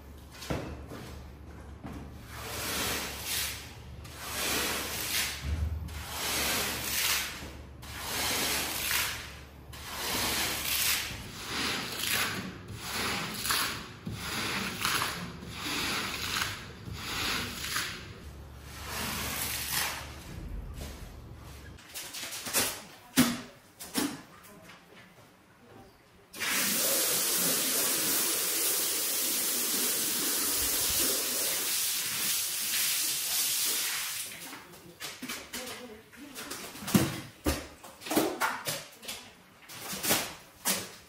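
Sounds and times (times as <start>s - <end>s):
cleaning tool rubbing a shaggy rug: 2.3s - 5.4s, 6.0s - 9.1s, 9.7s - 18.0s.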